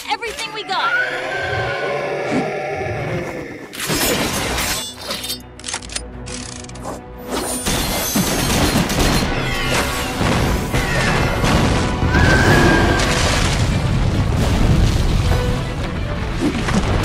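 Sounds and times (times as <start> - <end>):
crashing impacts and booms: 10.1 - 17.0
driving action music: 14.3 - 17.0.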